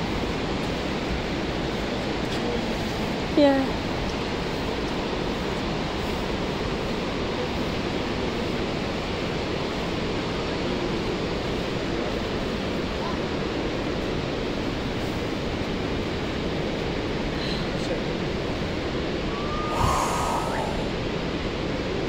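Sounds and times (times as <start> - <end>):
steady rushing noise: 18.3 - 22.0.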